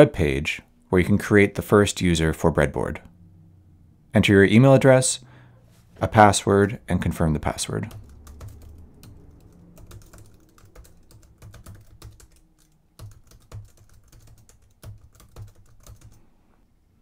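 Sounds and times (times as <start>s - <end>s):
keyboard typing: 7.8s - 16.2s.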